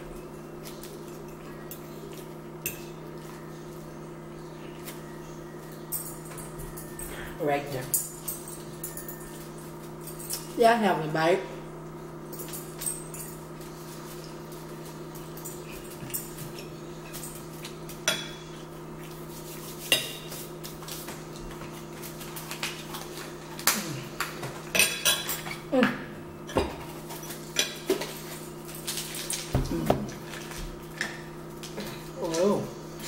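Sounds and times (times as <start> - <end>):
steady low hum: 0.0 - 33.0
forks clinking on plates: 5.6 - 10.6, 15.2 - 18.6, 24.4 - 25.7.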